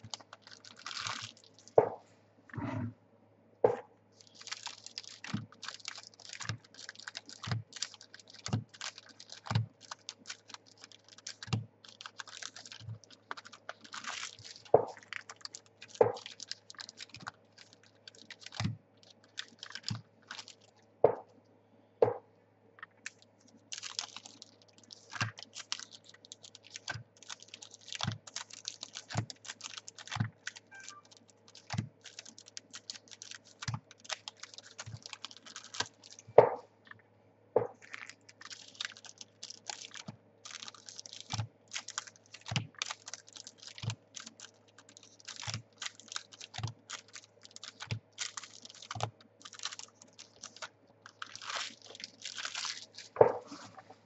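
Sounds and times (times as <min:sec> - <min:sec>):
wrapper crinkling: 0:00.0 - 0:02.0, 0:04.2 - 0:20.9, 0:22.8 - 0:36.6, 0:37.6 - 0:54.0.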